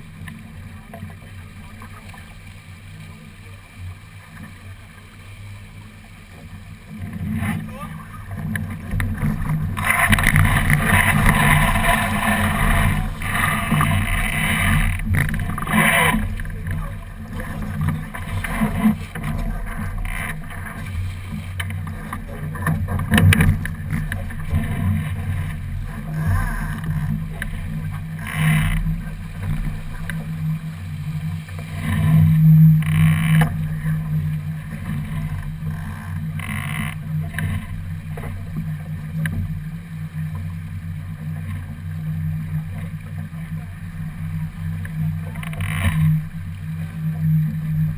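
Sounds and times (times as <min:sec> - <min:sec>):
water rushing along hull: 0:00.0 - 0:47.9
sails and deck gear rattling: 0:07.0 - 0:30.5.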